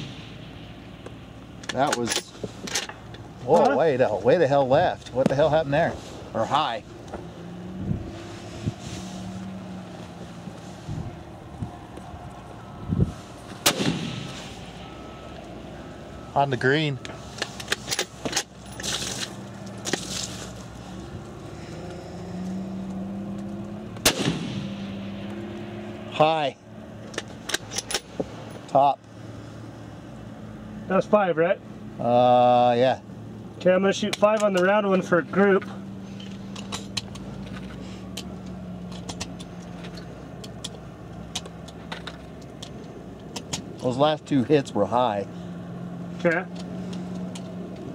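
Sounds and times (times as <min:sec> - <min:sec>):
rifle shot: 0:00.0 - 0:00.6, 0:13.6 - 0:14.5, 0:24.0 - 0:25.1
engine idling hum: 0:00.0 - 0:47.9.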